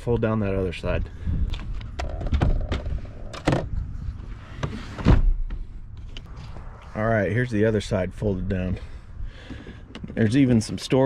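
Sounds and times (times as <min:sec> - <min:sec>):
seat clicks and knocks: 0:01.6 - 0:03.7.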